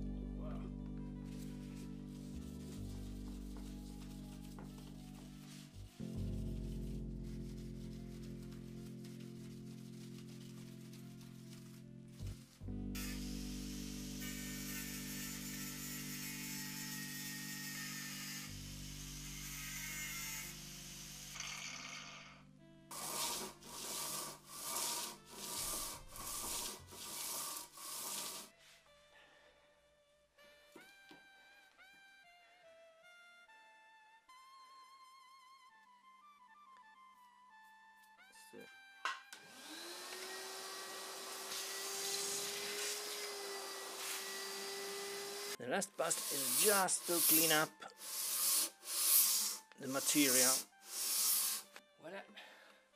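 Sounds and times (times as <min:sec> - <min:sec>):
steel bar rubbing on abrasive paper: 0:01.7 - 0:22.2, 0:22.9 - 0:28.5, 0:40.3 - 0:51.8
angle grinder wire brushing steel: 0:09.1 - 0:28.5, 0:39.4 - 0:51.8
vacuum cleaner motor running: 0:39.4 - 0:45.6.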